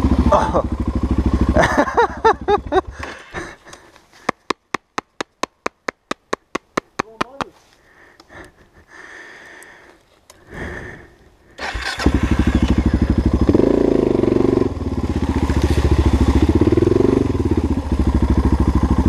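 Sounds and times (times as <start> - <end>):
motorcycle engine starting and revving: 0.0 - 3.9, 11.5 - 19.0.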